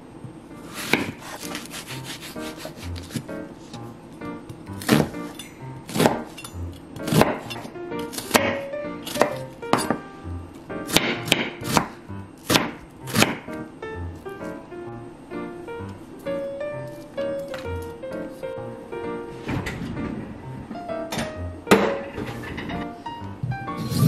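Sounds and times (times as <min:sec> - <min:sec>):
soft background music: 0:00.4 - 0:24.0
knife cutting onion on board: 0:00.6 - 0:03.9, 0:04.7 - 0:10.0, 0:10.8 - 0:13.6, 0:23.8 - 0:24.0.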